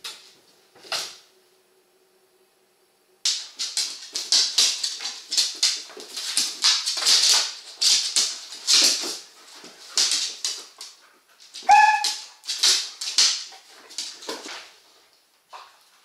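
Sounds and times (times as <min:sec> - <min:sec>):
dogs play-fighting noises: 0:03.3 - 0:16.0
dog yelping: 0:11.6 - 0:12.4.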